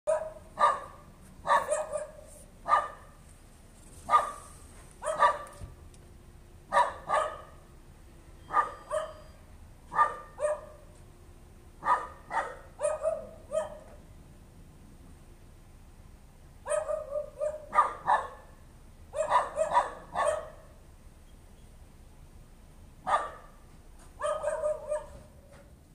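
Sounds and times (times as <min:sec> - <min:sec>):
dog barking: 0:00.1 - 0:03.2, 0:04.1 - 0:05.6, 0:06.7 - 0:07.6, 0:08.5 - 0:09.3, 0:09.9 - 0:10.9, 0:11.8 - 0:14.0, 0:16.7 - 0:20.8, 0:23.0 - 0:23.6, 0:24.2 - 0:25.5.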